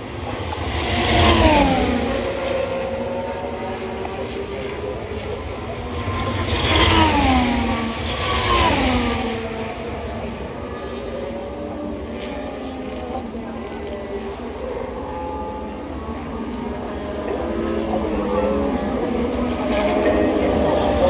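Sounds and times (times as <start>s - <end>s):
racing cars passing at speed: 0.0s - 12.6s.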